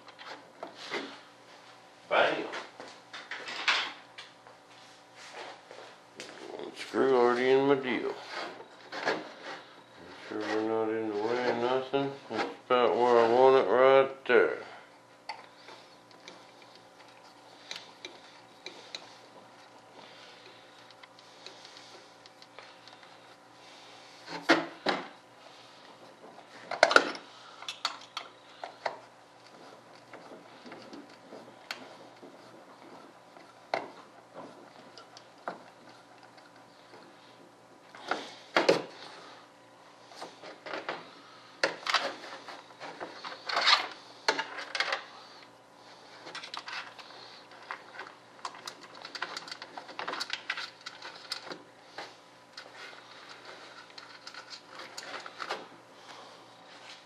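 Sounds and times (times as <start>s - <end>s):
small hard parts clicking and rattling: 46.3s - 51.6s, 52.6s - 55.6s.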